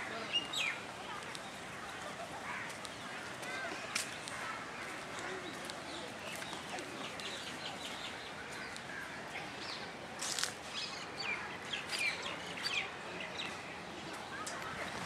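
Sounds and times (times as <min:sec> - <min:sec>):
birds chirping: 0:00.0 - 0:09.9
outdoor background noise: 0:00.0 - 0:15.0.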